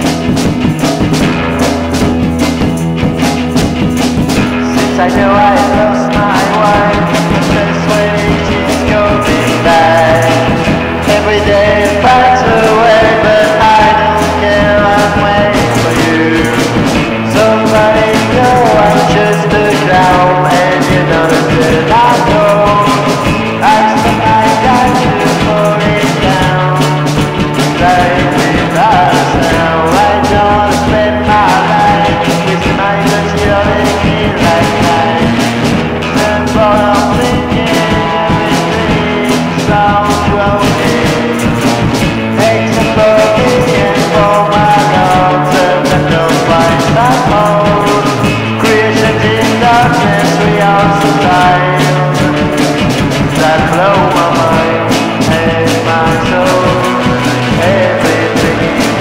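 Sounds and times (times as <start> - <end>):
rock band playing: 0.0 - 59.0.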